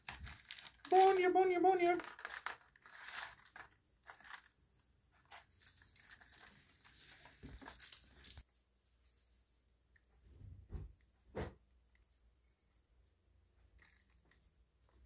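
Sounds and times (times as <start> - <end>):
cardboard crinkling and rustling: 0.0 - 8.4.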